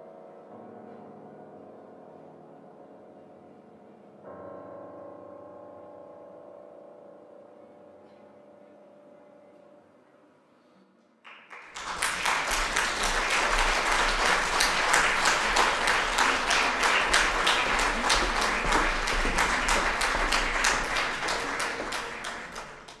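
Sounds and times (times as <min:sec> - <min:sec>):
audience applauding: 0:11.3 - 0:23.0.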